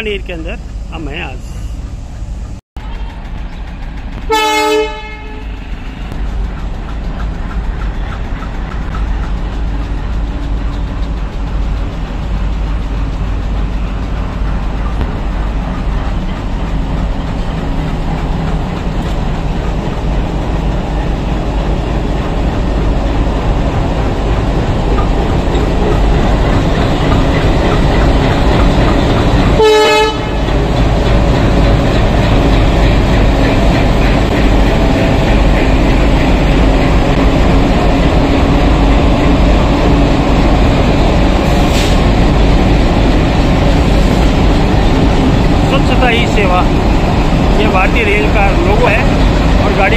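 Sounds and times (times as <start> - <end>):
diesel locomotives rumbling: 0.0 - 49.9.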